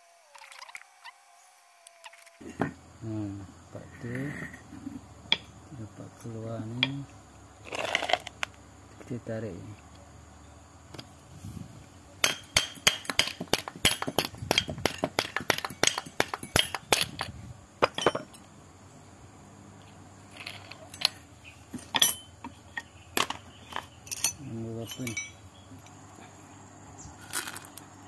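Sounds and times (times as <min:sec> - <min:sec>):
metal clinking and clicks: 0:12.2 - 0:18.5, 0:20.3 - 0:25.9.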